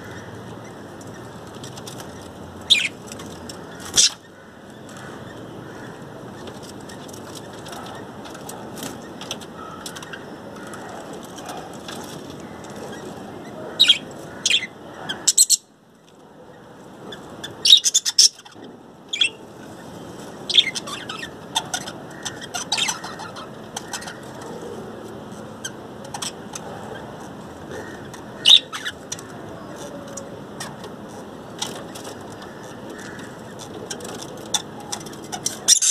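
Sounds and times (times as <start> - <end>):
budgerigars chirping: 2.2 - 3.0, 13.8 - 15.6, 17.1 - 24.4, 27.7 - 29.0.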